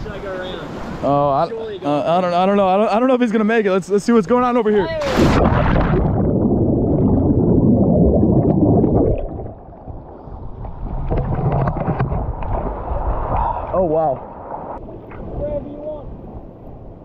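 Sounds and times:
muffled underwater sloshing: 5.0s - 15.4s.

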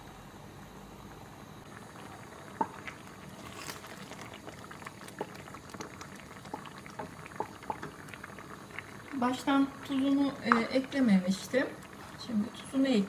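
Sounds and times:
sauce bubbling in a pot: 1.5s - 13.0s.

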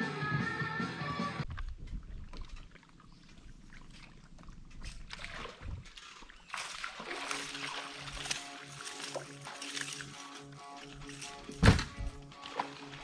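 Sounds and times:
music: 0.0s - 1.4s, 7.3s - 13.0s
water lapping at hull: 1.6s - 13.0s.

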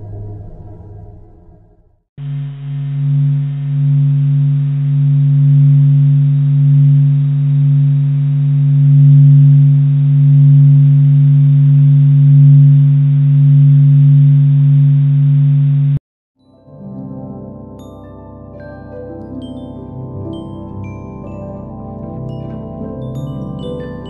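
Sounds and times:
deep steady drone: 0.0s - 16.0s.

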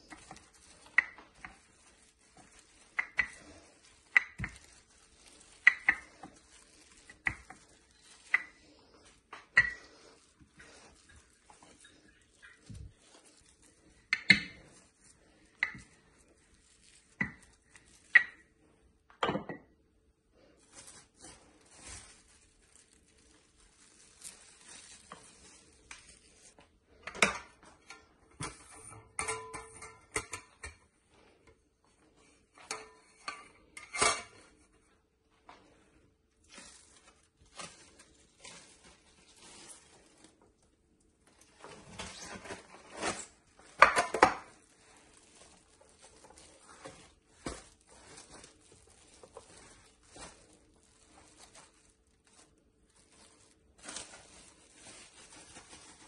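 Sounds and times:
plastic wrap rustling: 0.0s - 19.2s, 19.9s - 56.0s
metal tart pan clattering: 27.1s - 30.8s.

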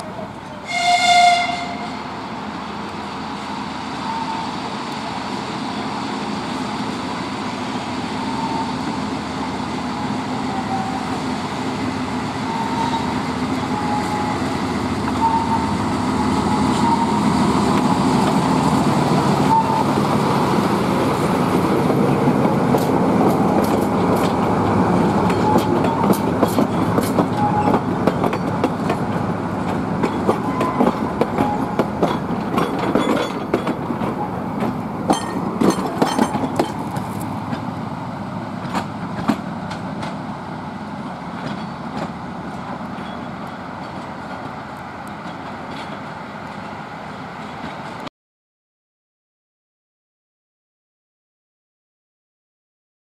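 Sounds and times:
rail-joint clicks: 0.0s - 0.7s, 12.5s - 15.7s, 22.4s - 37.7s, 38.6s - 40.3s, 41.3s - 46.8s, 47.4s - 48.1s
diesel locomotive rolling past: 0.0s - 48.1s
train horn blast: 0.6s - 2.1s, 15.2s - 15.8s.

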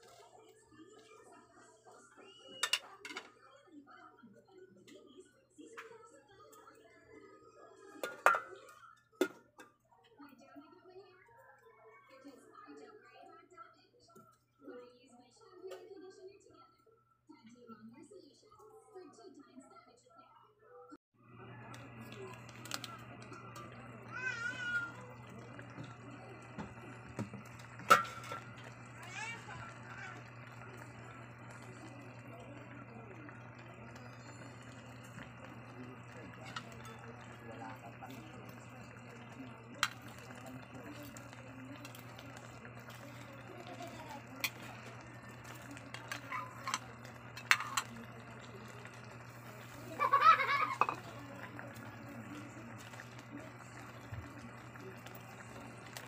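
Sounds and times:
shrimp clinking into metal pot: 8.0s - 8.6s, 27.8s - 28.5s, 50.8s - 51.0s.

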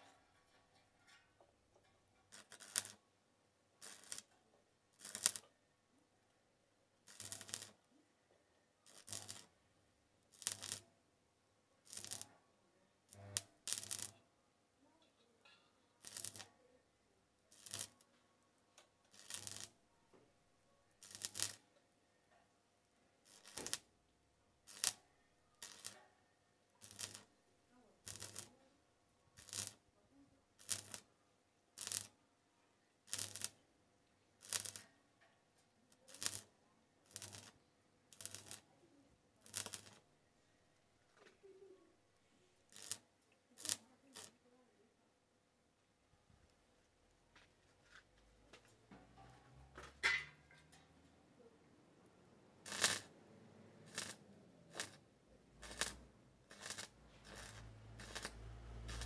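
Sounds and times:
welding arc crackling: 2.3s - 3.0s, 3.8s - 4.3s, 5.0s - 5.4s, 7.1s - 7.8s, 8.9s - 9.5s, 10.4s - 10.8s, 11.9s - 12.2s, 13.1s - 14.1s, 16.0s - 16.5s, 17.6s - 18.0s, 19.1s - 19.7s, 21.0s - 21.6s, 23.3s - 23.8s, 24.7s - 25.0s, 25.6s - 26.0s, 26.8s - 27.3s, 28.1s - 28.5s, 29.4s - 29.8s, 30.6s - 31.0s, 31.8s - 32.1s, 33.1s - 33.6s, 34.4s - 34.8s, 36.1s - 36.4s, 37.1s - 37.5s, 38.1s - 38.6s, 39.4s - 40.0s, 42.7s - 43.0s, 43.6s - 44.3s, 52.6s - 53.1s, 53.9s - 55.0s, 55.6s - 59.0s.

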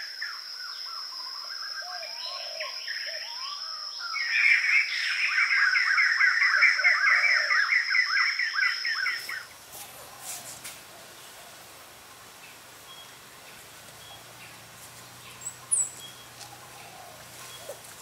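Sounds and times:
bird chirping: 12.4s - 18.0s.

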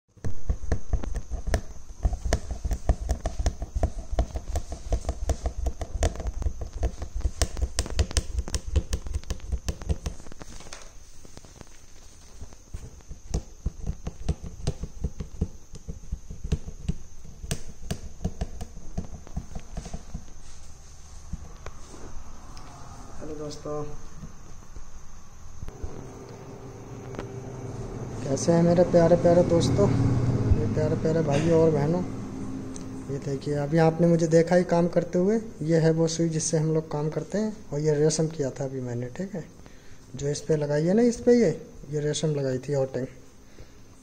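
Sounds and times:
needle tapping through taut fabric: 0.2s - 10.3s, 13.0s - 20.3s.

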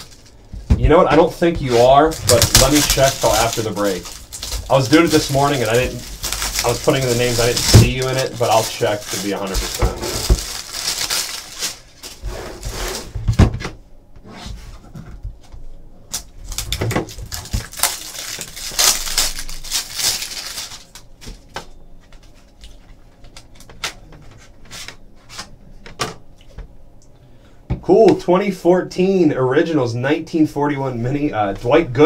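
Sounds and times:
plastic wrap crinkling: 0.0s - 12.3s, 16.2s - 24.0s.

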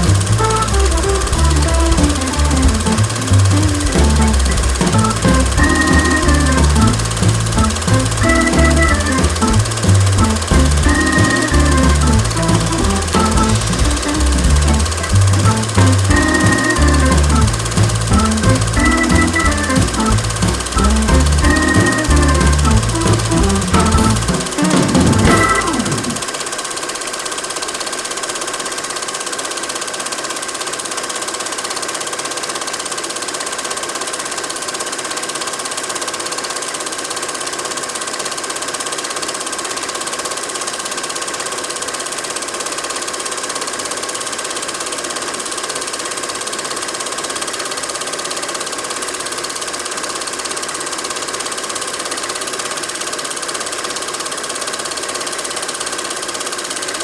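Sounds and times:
projector whine: 0.0s - 27.1s
film projector whirring and clattering: 0.0s - 57.0s.

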